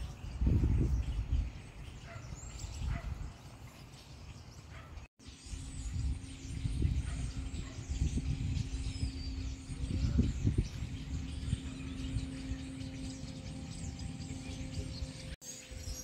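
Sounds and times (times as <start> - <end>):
bird chirps and calls: 0.0 - 16.0
steady low hum: 5.4 - 16.0
uneven low rumble: 5.7 - 15.4.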